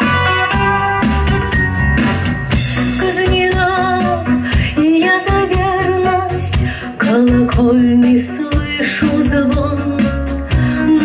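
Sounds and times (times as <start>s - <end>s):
woman singing: 3.0s - 11.0s.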